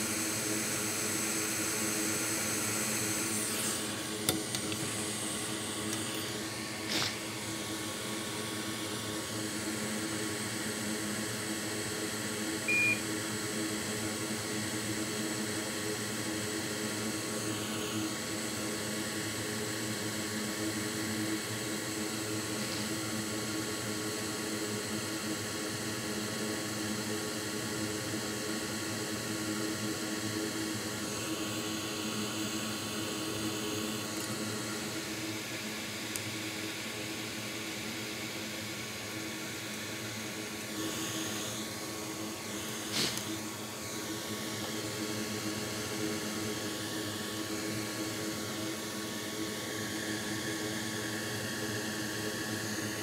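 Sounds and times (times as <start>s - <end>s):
electric fan whirring: 0.0s - 53.0s
short electronic beep: 12.7s - 13.0s.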